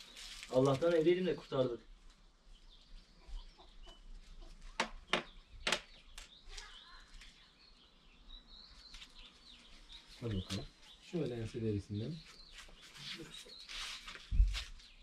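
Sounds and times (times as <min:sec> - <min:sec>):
faint bird calls chirping: 0:02.5 - 0:15.0
sharp knocks or clucks: 0:04.7 - 0:06.0.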